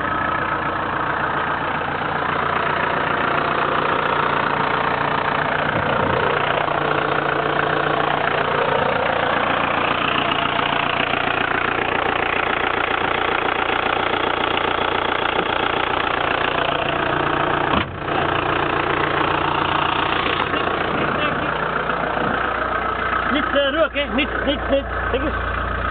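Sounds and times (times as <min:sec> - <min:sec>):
diesel engine idling: 0:00.0 - 0:25.9
car bonnet shutting: 0:17.7 - 0:18.0.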